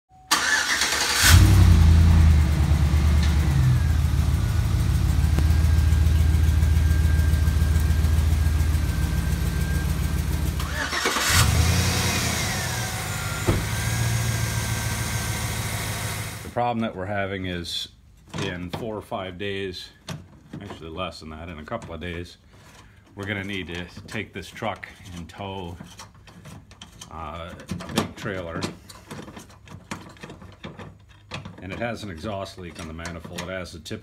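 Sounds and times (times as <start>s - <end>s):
car engine starting: 0.3s - 16.6s
car engine idling: 0.4s - 16.6s.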